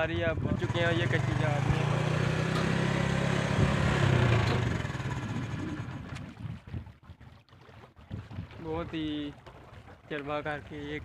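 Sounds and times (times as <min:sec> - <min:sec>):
small engine humming: 0:00.6 - 0:06.1.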